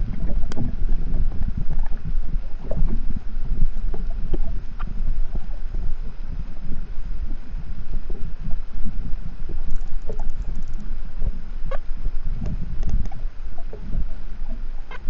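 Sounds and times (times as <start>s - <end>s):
underwater water rushing: 0.0s - 15.0s
faint whale calls: 9.3s - 12.2s, 13.0s - 15.0s
dolphin clicks: 9.7s - 10.8s.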